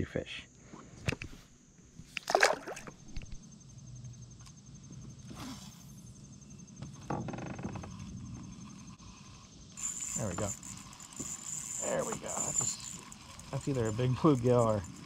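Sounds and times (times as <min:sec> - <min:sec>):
spinning reel cranking: 0:07.9 - 0:15.0.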